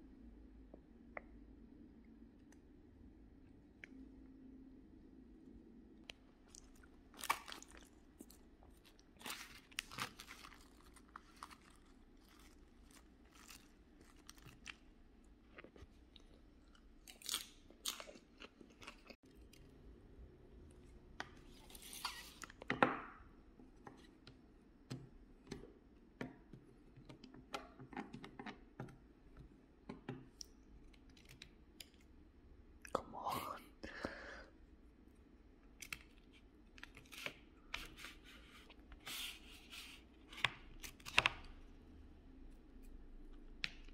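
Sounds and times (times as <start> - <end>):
chewing and crunching: 6.4 - 19.8.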